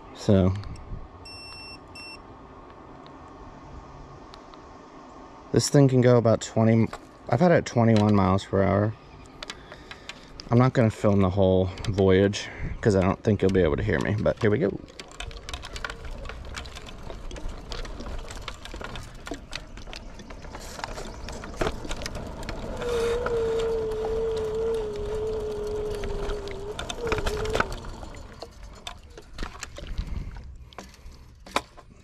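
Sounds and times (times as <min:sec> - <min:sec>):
electric scooter whine: 0:00.0 - 0:32.0
rumble of wind and tyres: 0:00.0 - 0:32.0
clicks and rattles: 0:09.3 - 0:32.0.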